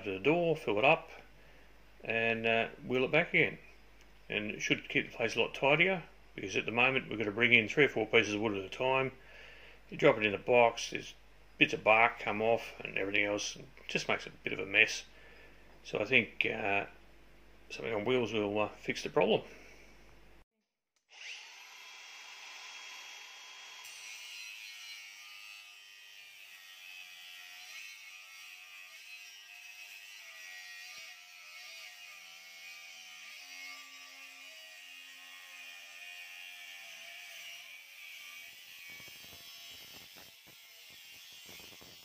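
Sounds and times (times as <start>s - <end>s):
angle grinder cutting steel: 21.1s - 42.0s.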